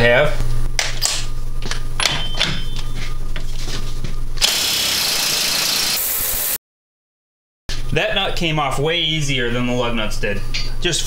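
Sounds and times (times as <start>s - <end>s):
impact wrench spinning nut: 4.4s - 6.0s.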